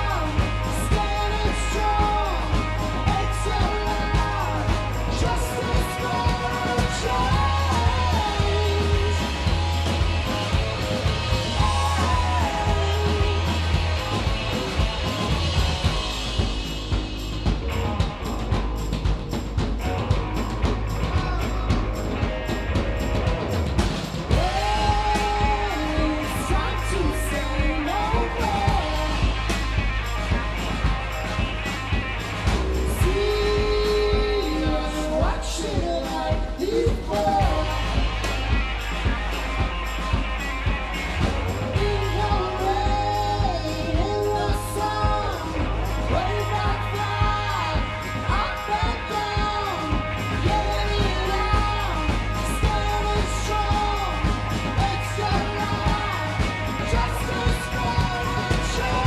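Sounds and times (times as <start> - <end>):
woman singing lead: 0.0 - 15.4, 24.3 - 30.0, 32.8 - 38.7, 41.5 - 59.0
bass guitar: 0.0 - 59.0
electric guitar: 0.0 - 59.0
rock band playing: 0.0 - 59.0
steady drum beat: 0.0 - 59.0.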